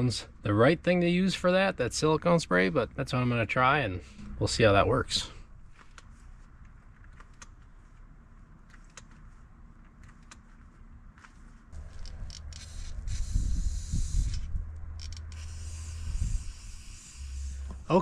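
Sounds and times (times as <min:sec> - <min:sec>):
aerosol spray hissing: 0:12.6 - 0:14.5, 0:15.4 - 0:18.0.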